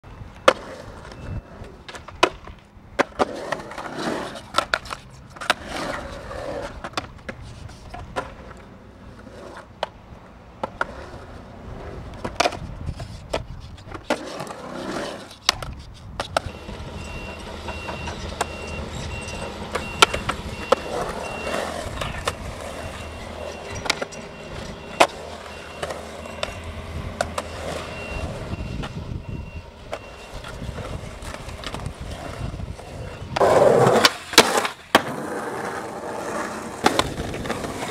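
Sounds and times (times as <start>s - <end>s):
skateboard wheels rolling on concrete: 0.0s - 37.9s
skateboard clacks and knocks: 29.9s - 37.9s.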